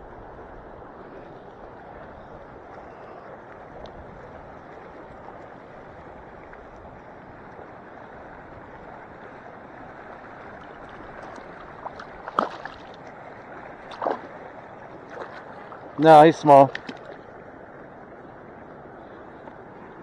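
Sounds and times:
lake water lapping on shore: 0:01.0 - 0:20.0
short sharp splashes: 0:10.9 - 0:13.0, 0:13.8 - 0:14.4, 0:15.0 - 0:17.2.

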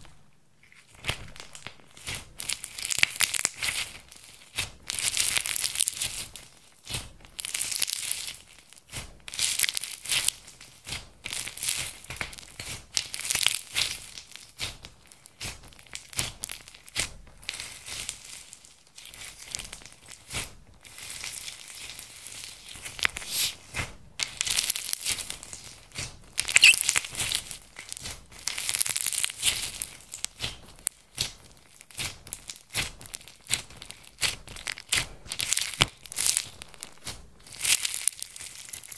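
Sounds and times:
slime crackling when kneaded: 0:00.8 - 0:08.4, 0:09.3 - 0:23.5, 0:24.2 - 0:38.9.

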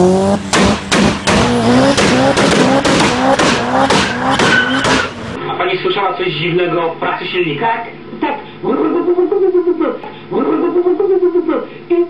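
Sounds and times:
car engine stuttering: 0:00.0 - 0:05.4.

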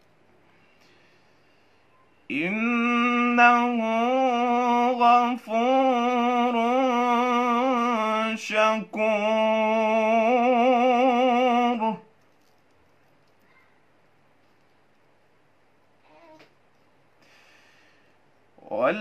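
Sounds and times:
young man chanting melodically: 0:02.3 - 0:12.1.

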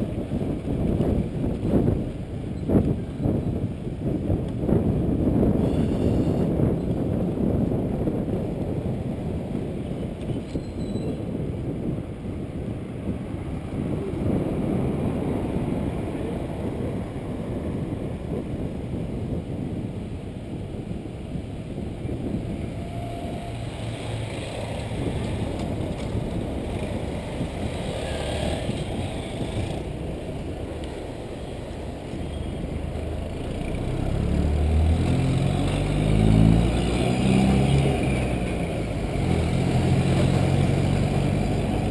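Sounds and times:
road rumble: 0:00.0 - 0:41.9
wind on camera: 0:00.0 - 0:41.9
bus engine running: 0:20.5 - 0:41.9.

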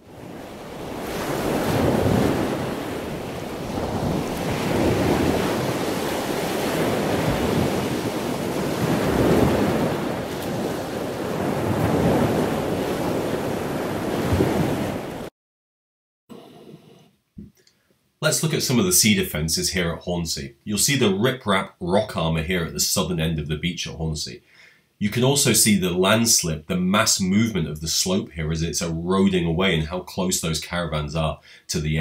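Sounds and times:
sea waves breaking on a beach: 0:00.0 - 0:15.3
wind: 0:00.0 - 0:15.3.

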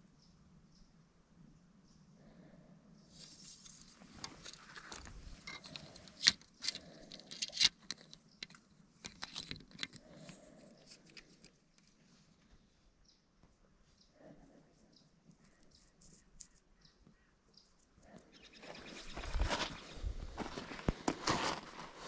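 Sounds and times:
small hard objects clicking: 0:04.4 - 0:11.6.

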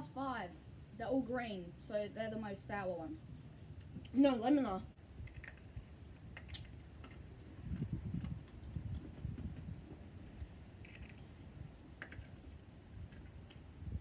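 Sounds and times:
small wet mouth clicks: 0:05.2 - 0:09.1, 0:12.0 - 0:13.6
low muffled rumble: 0:07.3 - 0:10.7.

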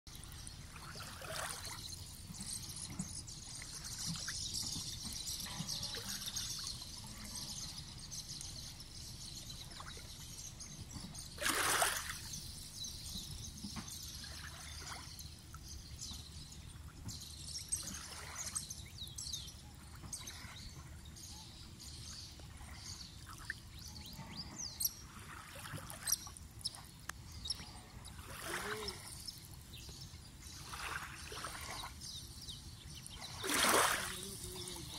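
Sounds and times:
water splashing: 0:00.7 - 0:01.8, 0:11.3 - 0:12.4, 0:17.8 - 0:18.6, 0:25.1 - 0:26.5, 0:28.2 - 0:29.2, 0:30.5 - 0:32.0, 0:33.2 - 0:34.9
faint bird calls: 0:25.9 - 0:29.3.

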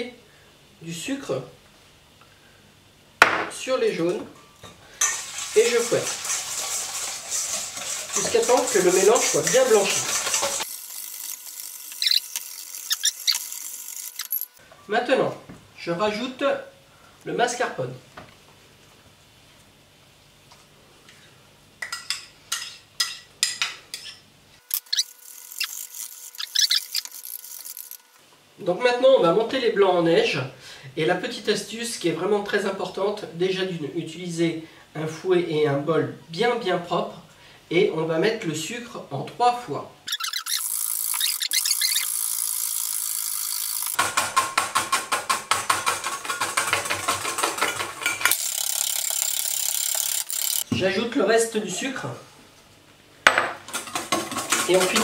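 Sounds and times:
whisk clattering against metal bowl: 0:05.0 - 0:10.7, 0:43.9 - 0:50.6, 0:53.7 - 0:55.0
utensil scraping steel bowl: 0:05.0 - 0:14.6, 0:53.7 - 0:55.0.

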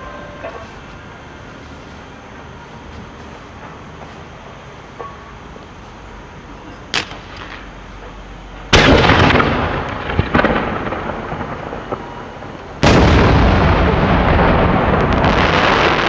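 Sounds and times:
sharp firework cracks: 0:06.9 - 0:07.7, 0:08.7 - 0:16.0
rolling echo: 0:06.9 - 0:16.0
firework shell booms: 0:08.7 - 0:12.2, 0:12.8 - 0:16.0
firework crackling: 0:08.7 - 0:16.0.

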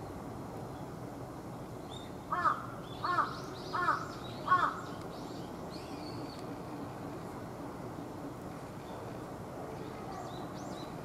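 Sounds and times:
crow cawing: 0:02.3 - 0:04.8.

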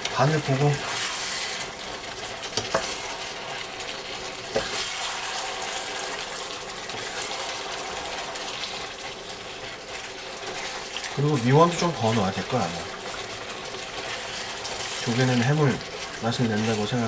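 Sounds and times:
broth bubbling in a wok: 0:00.0 - 0:17.0
spatula stirring: 0:00.0 - 0:17.0.

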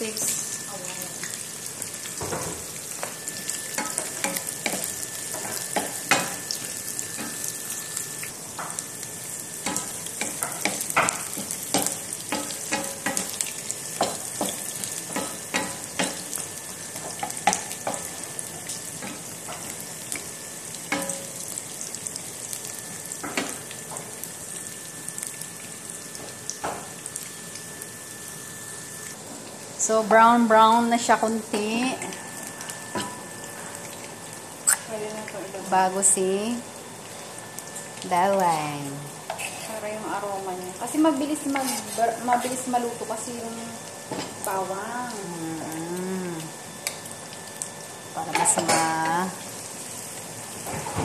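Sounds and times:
onions sizzling in hot oil: 0:00.0 - 0:51.0
wooden spatula scraping pan: 0:39.3 - 0:39.8, 0:41.4 - 0:42.6.

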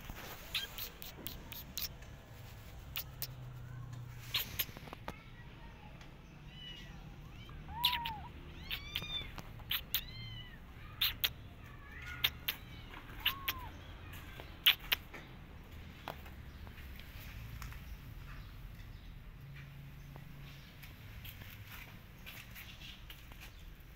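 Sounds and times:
kitten mewing: 0:00.4 - 0:01.9, 0:02.9 - 0:03.5, 0:04.3 - 0:04.9, 0:07.4 - 0:11.3, 0:12.2 - 0:13.7, 0:14.6 - 0:15.0
sharp clicks: 0:00.5 - 0:02.0, 0:04.3 - 0:05.2, 0:07.8 - 0:10.1, 0:14.6 - 0:15.2.

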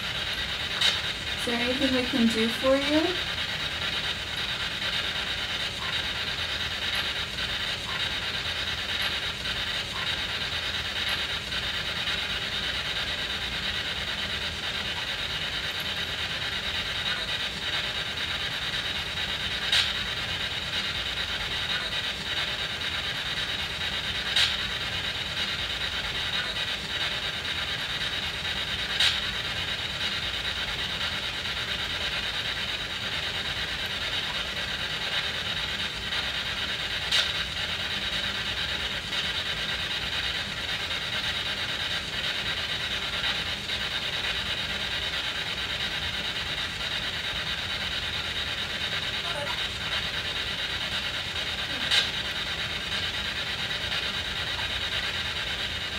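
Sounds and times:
radio static hiss: 0:00.0 - 0:03.2, 0:49.0 - 0:52.8.

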